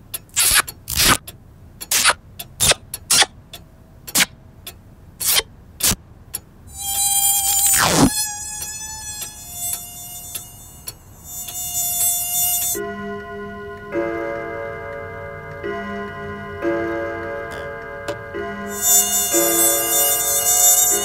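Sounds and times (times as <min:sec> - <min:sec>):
cartoon insect buzzing: 0:06.7 - 0:12.8, 0:18.7 - 0:21.0.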